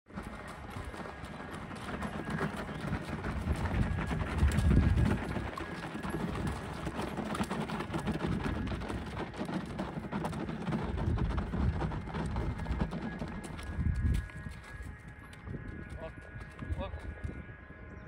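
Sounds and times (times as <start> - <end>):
horse hooves on gravel: 0.1 - 17.8.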